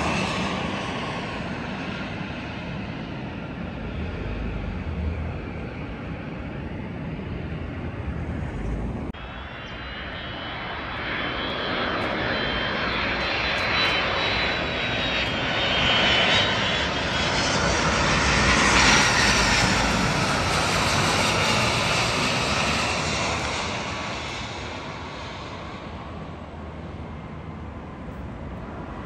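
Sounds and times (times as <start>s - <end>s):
jet airliner passing: 0.0s - 29.0s.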